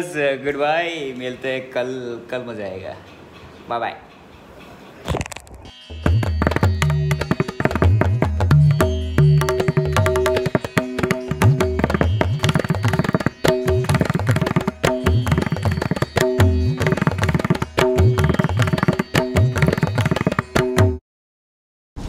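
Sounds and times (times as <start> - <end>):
held melodic notes: 2.7 - 21.0
hand-drum strokes: 5.0 - 21.0.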